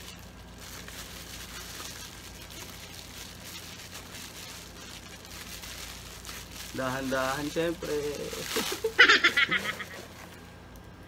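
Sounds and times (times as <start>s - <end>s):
bubble wrap crinkling: 0.0s - 10.6s
low steady hum: 0.0s - 11.0s.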